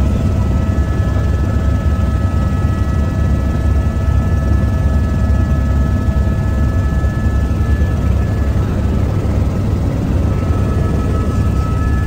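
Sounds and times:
helicopter rotor and engine rumble: 0:00.0 - 0:12.0
thin whining tones: 0:06.2 - 0:12.0.

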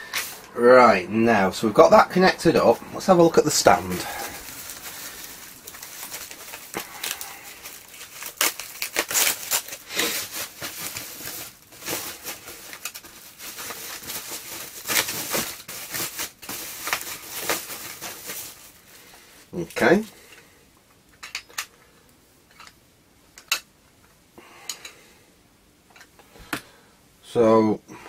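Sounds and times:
plastic packaging crinkling: 0:02.6 - 0:20.1.

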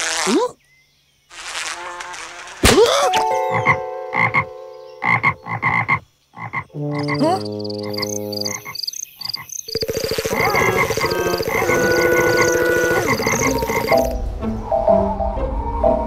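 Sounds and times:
cartoon frogs croaking: 0:03.5 - 0:14.1.

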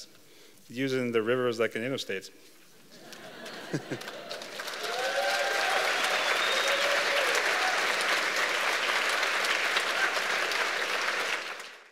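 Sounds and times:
audience applauding: 0:03.1 - 0:11.9.

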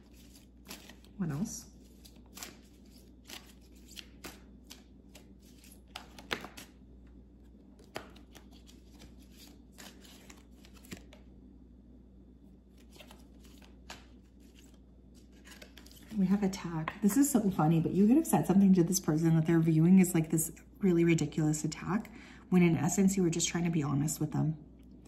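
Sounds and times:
cards being shuffled: 0:00.0 - 0:11.3, 0:12.7 - 0:16.2.

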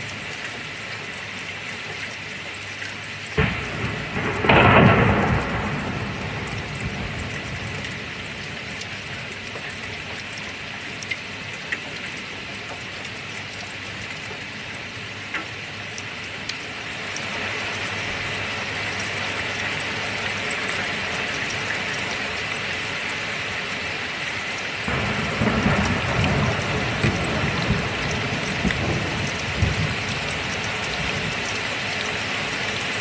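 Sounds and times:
steady rain: 0:00.0 - 0:33.0
thunderclap: 0:03.4 - 0:08.0, 0:24.9 - 0:30.2.

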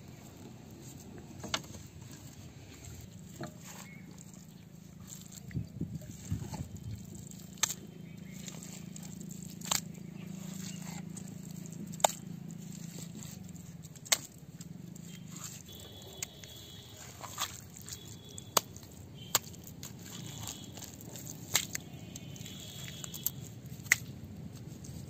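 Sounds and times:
wet mud scooped and packed: 0:00.0 - 0:25.0.

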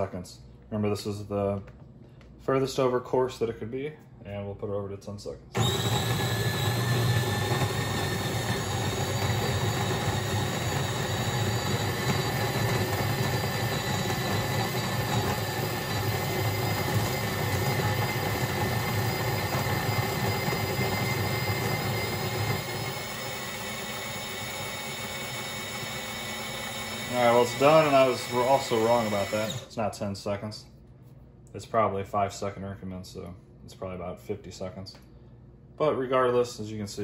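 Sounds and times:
coffee grinder grinding beans: 0:05.6 - 0:29.7.

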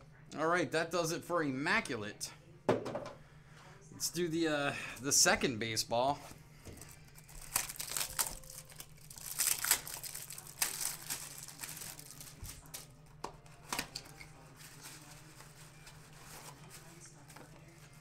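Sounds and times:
plastic wrapping crinkling and tearing: 0:06.8 - 0:18.0.

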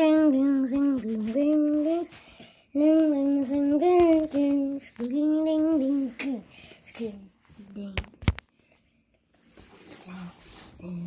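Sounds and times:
child singing slow tune: 0:00.0 - 0:08.0.

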